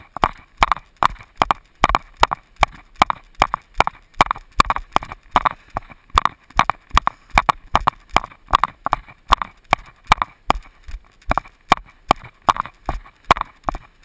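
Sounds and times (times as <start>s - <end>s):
footsteps on dirt trail: 0.0s - 14.0s
hard breathing: 3.2s - 14.0s.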